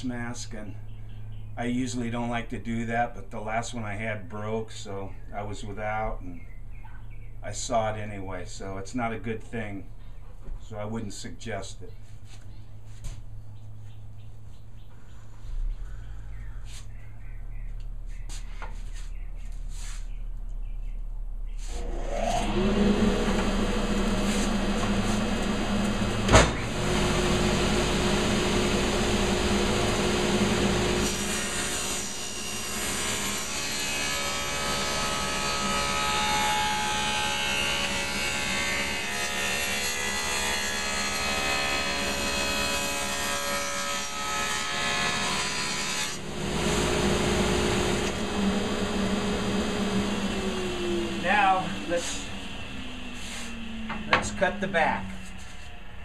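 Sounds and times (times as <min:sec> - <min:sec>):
table saw motor running: 0:21.7 - 0:56.0.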